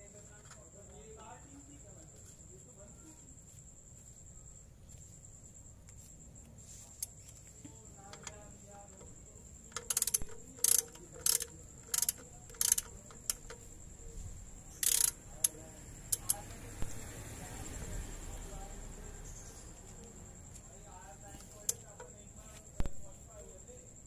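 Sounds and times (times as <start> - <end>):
socket ratchet clicking: 9.0 - 13.8, 14.7 - 17.0.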